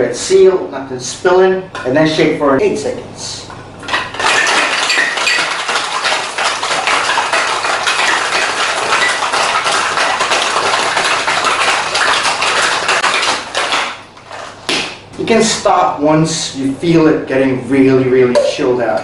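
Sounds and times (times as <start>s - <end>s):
ice rattling in cocktail shaker: 3.9s - 14.6s.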